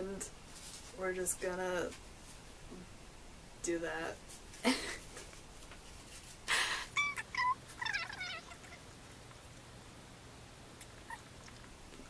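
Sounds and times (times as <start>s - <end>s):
woman giggling squeakily: 6.8s - 7.5s.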